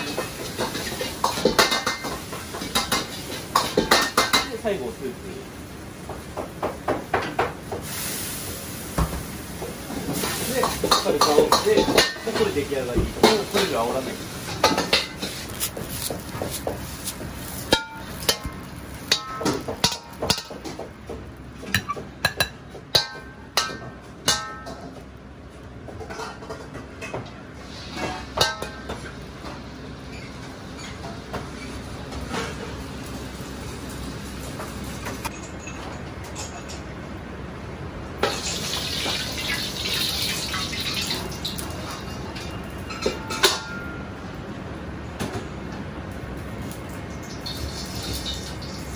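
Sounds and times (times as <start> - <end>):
water hissing in hot wok: 7.7 - 11.3, 38.2 - 41.9, 47.2 - 48.9
metal ladle clanking on wok: 17.7 - 20.8, 21.7 - 25.0.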